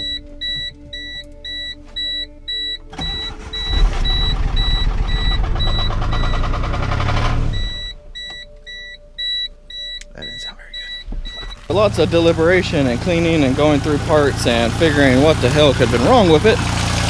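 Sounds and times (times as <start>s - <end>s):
car warning chime beeping: 0.0s - 16.3s
car engine running unevenly: 2.9s - 8.0s, 11.0s - 17.0s.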